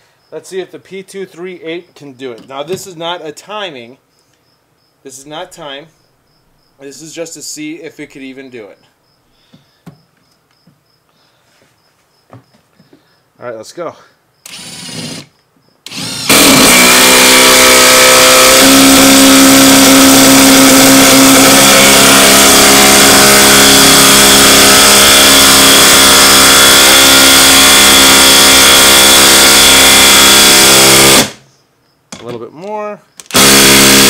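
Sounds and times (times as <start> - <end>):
impact driver hammering screw: 14.5 - 15.3, 15.9 - 31.4, 33.2 - 34.0.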